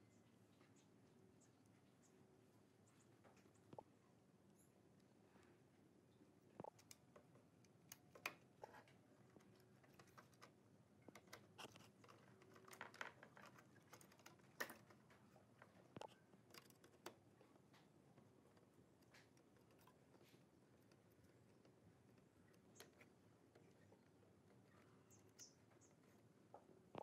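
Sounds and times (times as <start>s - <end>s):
plastic parts clicking and tapping: 6.6s - 26.1s.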